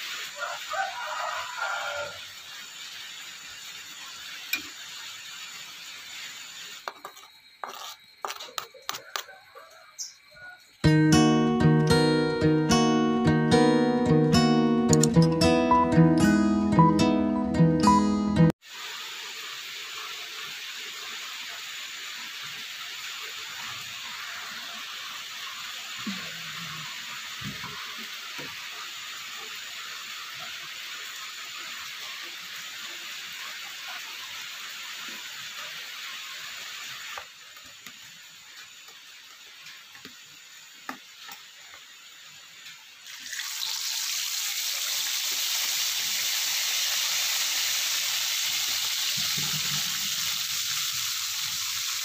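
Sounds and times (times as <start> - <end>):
rain falling: 0.0 - 6.9, 18.8 - 52.0
fish frying in hot oil: 0.0 - 8.5, 18.5 - 52.0.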